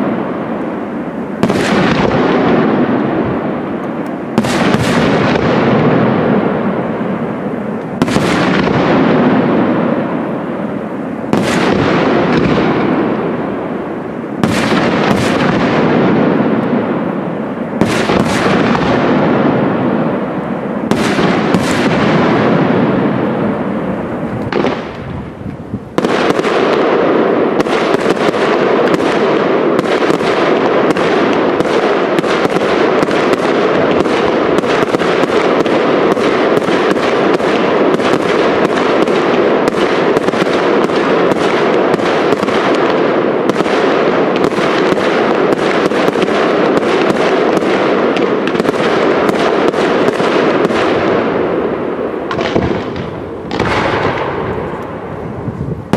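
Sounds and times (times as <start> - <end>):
fireworks bursting with loud bangs: 0.0 - 55.9
fireworks crackling: 0.0 - 55.9.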